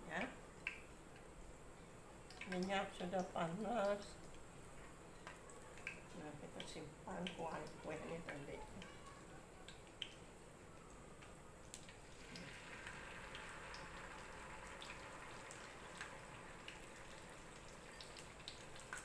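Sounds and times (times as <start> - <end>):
hot oil sizzling in a pan: 11.8 - 19.0.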